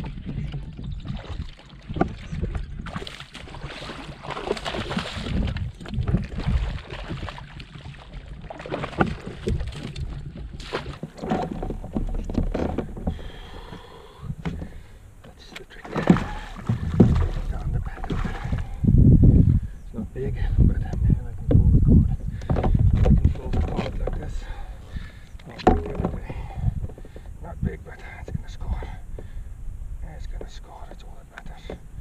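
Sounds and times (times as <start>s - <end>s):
water splashing around kayak: 0.0s - 32.0s
gear knocking on hull: 15.9s - 18.7s, 25.5s - 27.2s.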